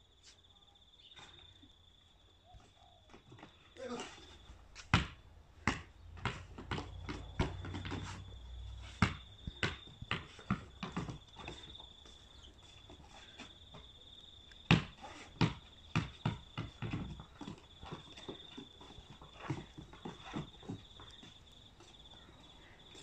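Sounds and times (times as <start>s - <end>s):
basketball bouncing on wood deck: 4.9s - 11.9s, 14.7s - 21.4s.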